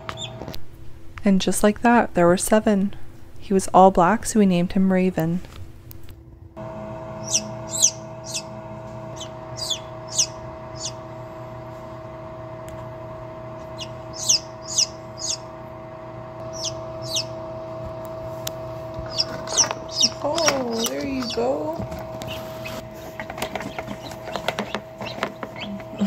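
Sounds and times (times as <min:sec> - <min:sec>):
incubator hum: 0:00.0 - 0:26.0
chicks peeping: 0:00.1 - 0:00.4, 0:07.2 - 0:08.5, 0:09.1 - 0:11.0, 0:13.6 - 0:15.5, 0:16.4 - 0:17.4, 0:18.9 - 0:26.0.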